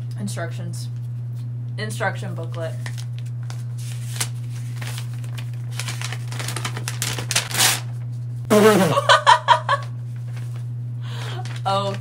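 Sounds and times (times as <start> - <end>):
steady low hum: 0.0 - 12.0
paper crinkling and rustling: 2.5 - 8.1, 10.2 - 10.7, 11.3 - 12.0.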